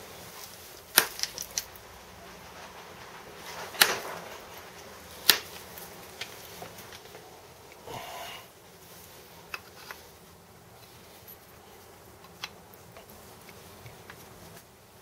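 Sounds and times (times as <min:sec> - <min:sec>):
stone flakes snapping: 0:00.8 - 0:01.8, 0:03.5 - 0:07.1.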